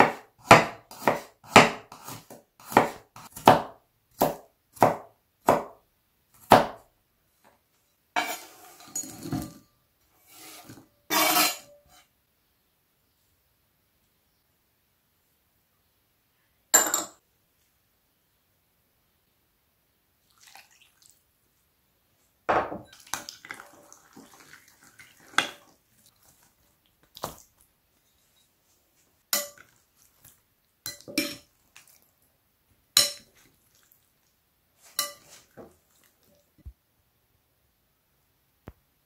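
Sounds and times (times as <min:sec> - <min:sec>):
wet stirring: 0:22.9 - 0:32.3, 0:33.0 - 0:36.6
metal spoon clinking on glass bowl: 0:29.4 - 0:29.7, 0:30.9 - 0:31.5, 0:33.0 - 0:33.3, 0:35.0 - 0:35.4.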